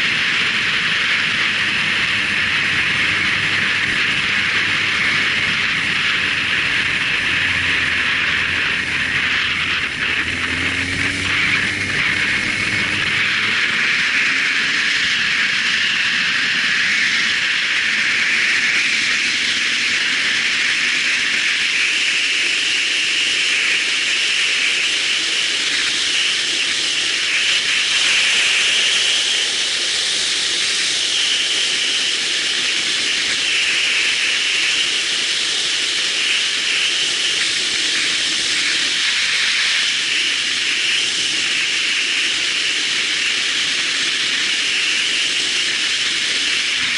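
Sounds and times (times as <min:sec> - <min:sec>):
motorcycle engine rising in pitch: 0:00.0 - 0:21.3
wind hiss over microphone: 0:00.0 - 0:46.9.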